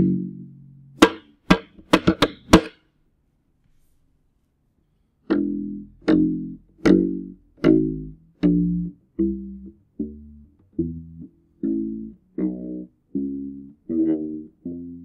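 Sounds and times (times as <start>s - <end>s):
bass ukulele notes: 0.0s - 2.8s, 5.2s - 15.0s
muted percussive hits on strings: 1.0s - 2.9s.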